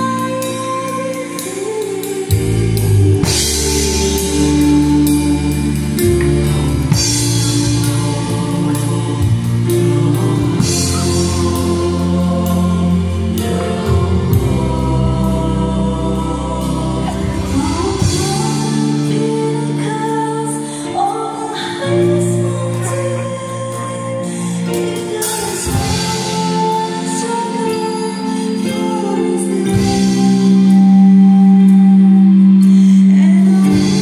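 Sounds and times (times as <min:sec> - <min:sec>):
drum kit beat: 0:00.0 - 0:19.8, 0:24.6 - 0:27.8
bass line: 0:00.0 - 0:34.0
keyboards: 0:00.0 - 0:34.0
person singing: 0:00.0 - 0:34.0.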